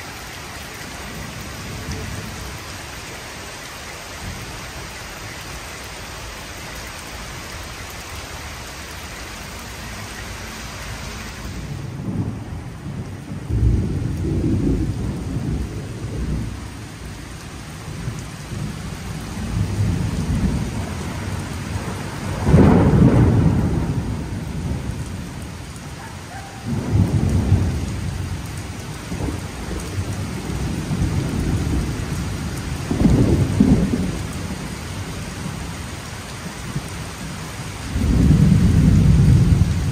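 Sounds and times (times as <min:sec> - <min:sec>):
heavy rain on paving: 0:00.0 - 0:39.9
storm wind rumbling: 0:10.7 - 0:35.8, 0:37.8 - 0:39.9
thunder: 0:11.7 - 0:16.6, 0:19.4 - 0:25.0, 0:26.7 - 0:28.2, 0:32.8 - 0:34.5, 0:37.9 - 0:39.9.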